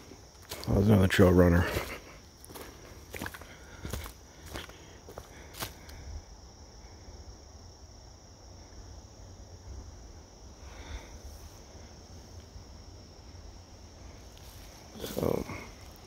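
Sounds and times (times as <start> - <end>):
insect chorus: 0.0 - 16.0.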